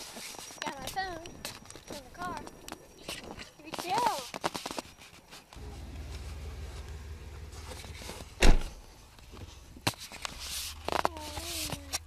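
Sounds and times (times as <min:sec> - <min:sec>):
car door shutting: 0:05.6 - 0:08.8
steady low hum: 0:05.6 - 0:10.9.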